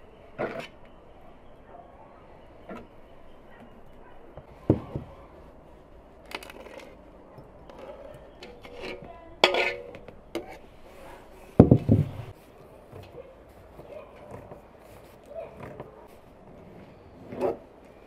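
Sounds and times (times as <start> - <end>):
metal spoon scraping steel bowl: 7.7 - 10.7.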